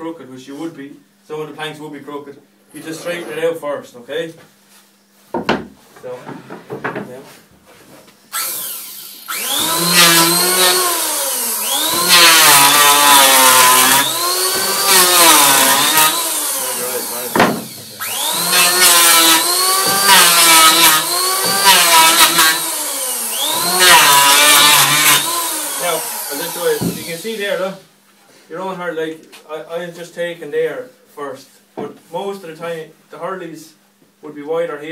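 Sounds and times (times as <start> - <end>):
power tool shaping wood: 8.4 - 27.6.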